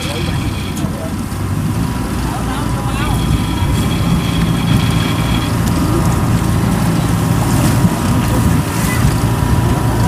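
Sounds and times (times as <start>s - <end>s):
diesel engine idling: 0.0s - 8.6s.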